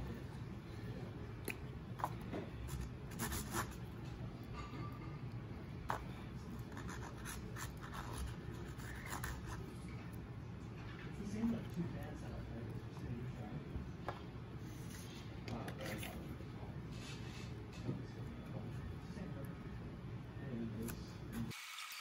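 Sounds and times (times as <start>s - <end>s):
low room hum: 0.0s - 21.6s
glue stick scratching on cardboard: 2.7s - 3.8s.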